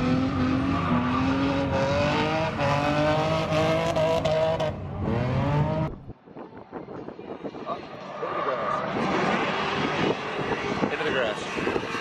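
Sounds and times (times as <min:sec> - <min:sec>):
tires squealing: 0:00.0 - 0:05.8, 0:07.8 - 0:12.0
car engine revving high: 0:00.0 - 0:06.0.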